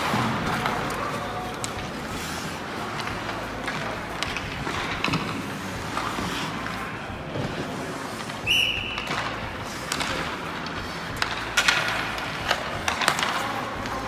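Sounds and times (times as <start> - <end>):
hockey sticks clacking on puck: 0.0 - 14.0
rink background noise: 0.0 - 14.0
whistle blast: 8.4 - 9.1.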